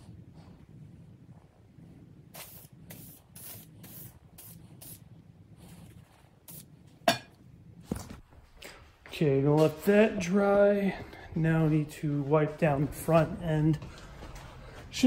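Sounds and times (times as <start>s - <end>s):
aerosol can spraying bursts: 2.4s - 5.0s.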